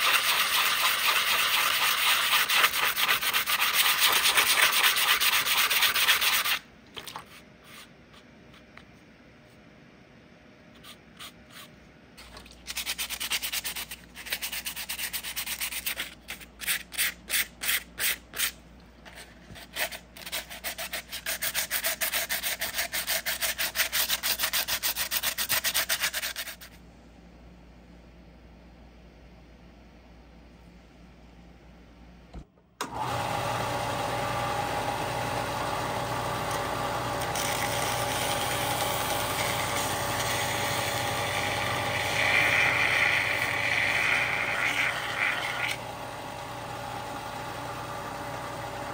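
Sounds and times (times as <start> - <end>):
wet sandpaper scrubbing plastic: 0.0 - 8.7, 10.8 - 26.8.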